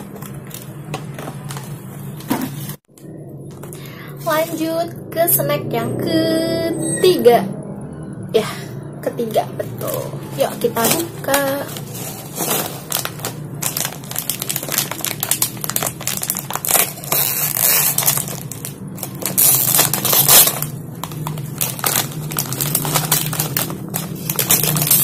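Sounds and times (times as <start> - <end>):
plastic snack bag crinkling: 10.4 - 25.0.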